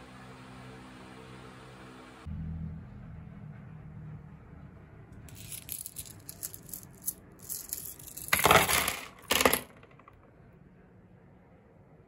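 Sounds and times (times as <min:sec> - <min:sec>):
coins and screws clattering on table: 0:05.3 - 0:10.2.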